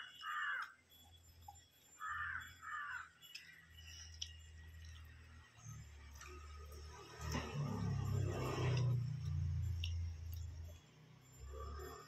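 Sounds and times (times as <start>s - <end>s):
crow cawing: 0.2s - 0.8s, 2.0s - 3.1s.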